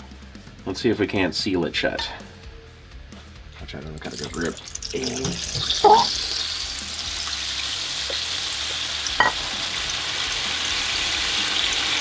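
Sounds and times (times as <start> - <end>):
oil sizzling and bubbling: 3.9 - 12.0.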